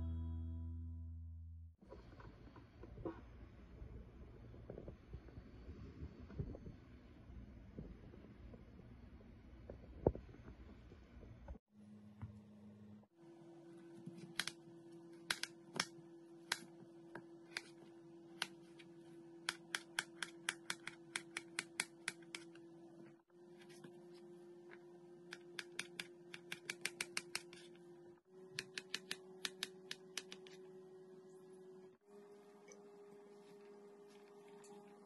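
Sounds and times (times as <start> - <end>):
knife clicking while cutting food: 25.3 - 27.6.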